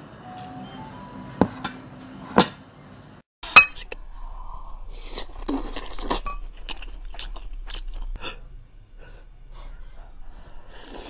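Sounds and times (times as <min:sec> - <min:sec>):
person chewing: 0:04.7 - 0:11.0.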